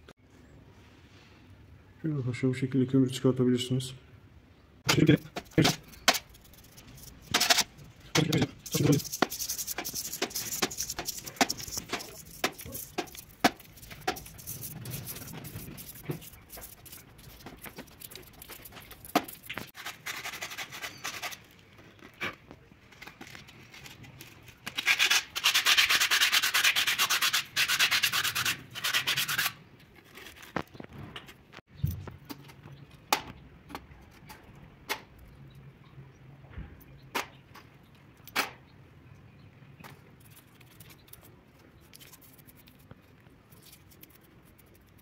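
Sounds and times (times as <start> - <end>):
brush scrubbing metal: 5.1 - 21.4, 24.8 - 29.6.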